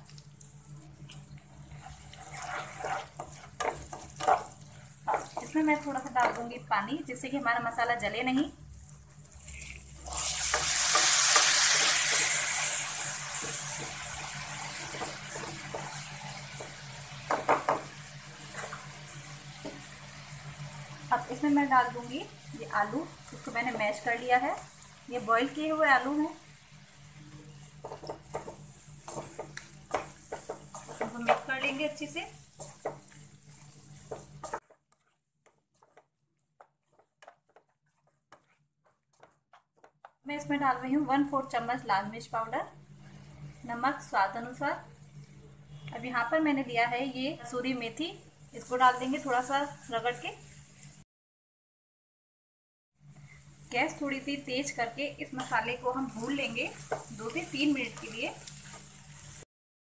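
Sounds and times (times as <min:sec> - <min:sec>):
water sizzling in hot oil: 0:00.0 - 0:34.7, 0:48.2 - 0:51.0, 0:53.2 - 0:59.5
spatula scraping a pan: 0:01.6 - 0:06.5, 0:09.4 - 0:19.9, 0:27.6 - 0:40.0, 0:55.4 - 0:59.4
masala bubbling: 0:08.5 - 0:21.4.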